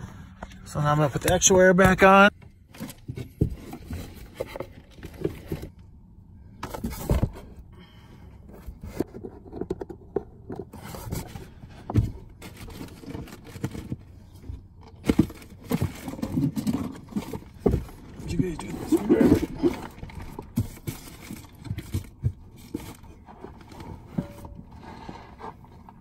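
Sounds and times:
plastic scrapes clicks and knocks: 8.5s - 26.0s.

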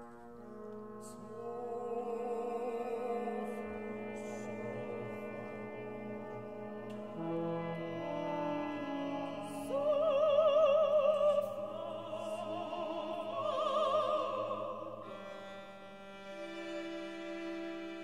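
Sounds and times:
operatic singers with vibrato: 1.0s - 5.4s, 9.2s - 15.5s
held string chords: 2.8s - 10.2s.

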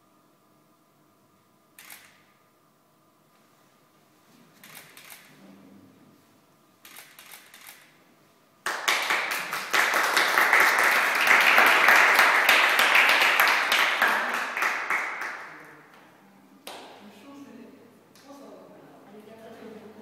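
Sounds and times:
people clapping: 8.6s - 17.0s.

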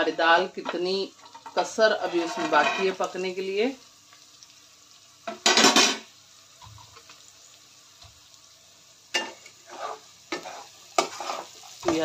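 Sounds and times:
spatula scraping in a pan: 0.0s - 3.1s, 9.1s - 12.0s.

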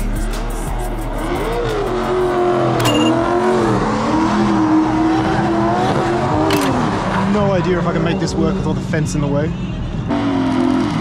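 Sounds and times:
car engine at high revs: 0.7s - 11.0s.

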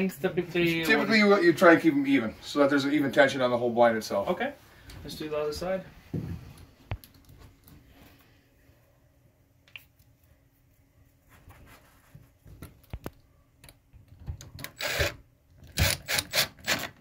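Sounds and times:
cordless drill bursts: 14.7s - 15.2s, 15.8s - 16.9s.

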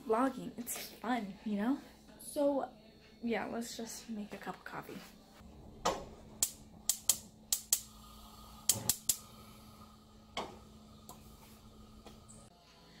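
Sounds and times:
gas stove igniter clicking: 5.8s - 8.0s, 8.6s - 9.3s.

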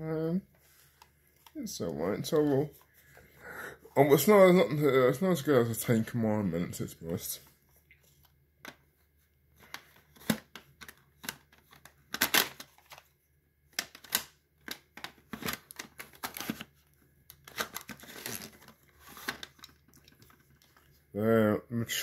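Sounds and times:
plastic cassette cases clacking: 9.6s - 13.1s, 13.8s - 16.7s, 17.3s - 20.8s.

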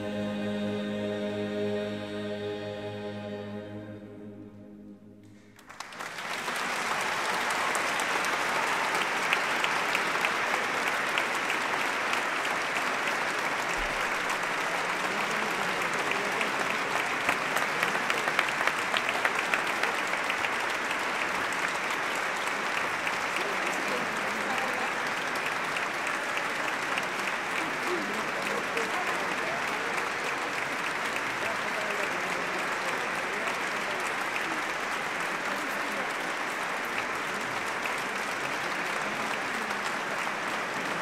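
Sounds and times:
choir and ensemble chord: 0.0s - 5.7s
audience applause: 5.4s - 41.0s.

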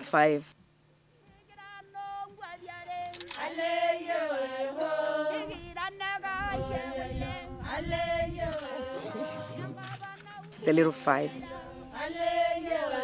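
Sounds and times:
voices singing a chant: 1.3s - 13.0s.

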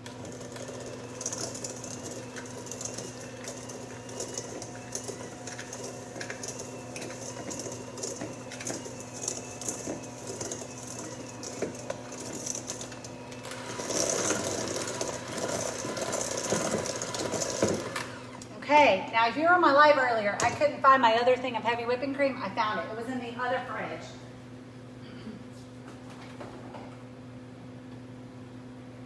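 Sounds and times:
electric hand mixer whipping: 0.0s - 18.6s.

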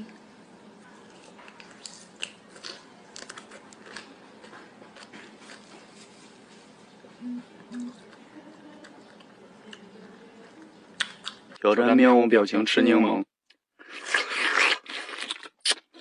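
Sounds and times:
man chewing: 1.5s - 6.5s, 13.8s - 16.0s
closed-mouth hums: 7.1s - 8.9s.

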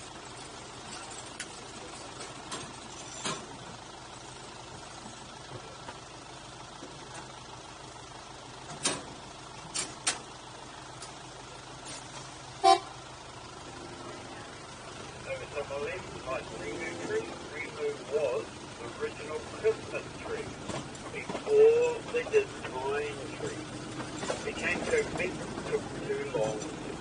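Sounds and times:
train engine hum: 0.0s - 27.0s
wheels clacking on track: 0.0s - 27.0s
short pitched train horn note: 12.6s - 13.0s.

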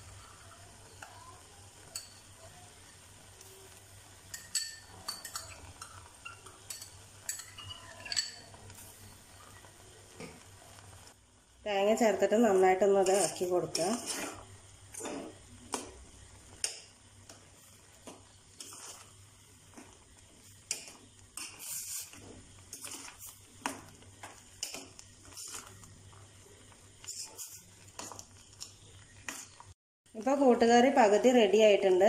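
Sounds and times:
metal spoon stirring in a pot: 1.8s - 3.0s, 4.2s - 10.5s, 12.5s - 29.8s
spoon scraping and clinking on pot: 4.3s - 9.1s, 13.0s - 15.4s.

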